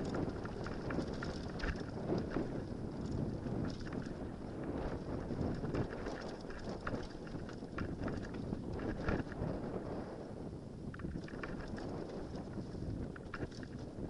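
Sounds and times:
bike clattering over bumps: 0.0s - 4.3s
tyre rumble: 0.0s - 10.0s
wind noise on microphone: 0.0s - 14.0s.

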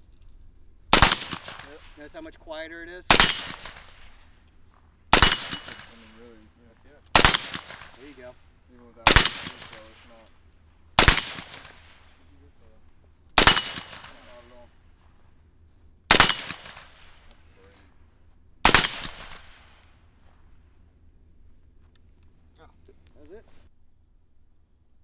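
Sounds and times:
rifle shots: 0.9s - 2.1s, 3.1s - 4.3s, 5.1s - 6.3s, 7.1s - 8.4s, 9.0s - 10.3s, 10.9s - 12.3s, 13.4s - 14.7s, 16.1s - 17.4s, 18.6s - 19.9s.

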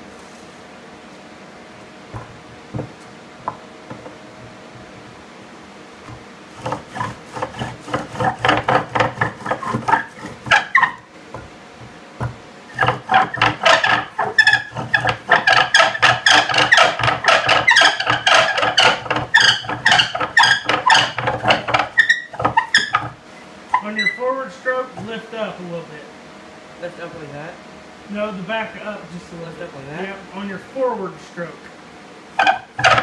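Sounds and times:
bow drill squeaking rub: 6.1s - 25.0s, 32.4s - 33.0s.

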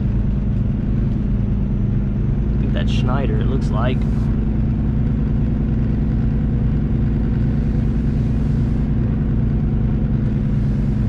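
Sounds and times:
truck diesel engine running: 0.0s - 11.0s.

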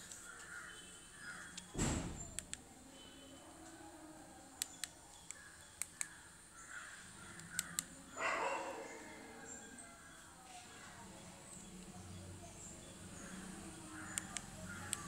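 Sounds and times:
phone keypad keys clicking: 4.6s - 6.2s, 7.4s - 7.9s, 14.1s - 15.0s.

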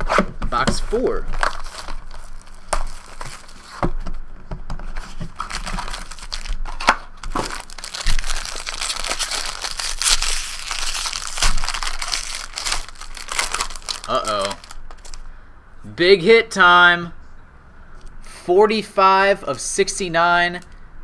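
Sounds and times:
foil pack crackling: 0.9s - 3.8s, 5.0s - 15.3s.

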